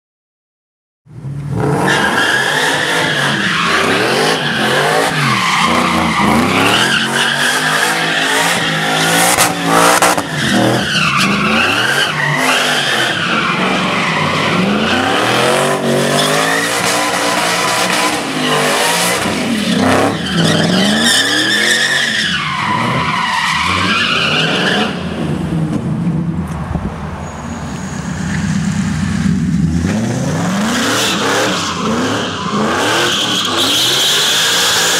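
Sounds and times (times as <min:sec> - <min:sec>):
engine revving hard: 0:29.3 - 0:34.9.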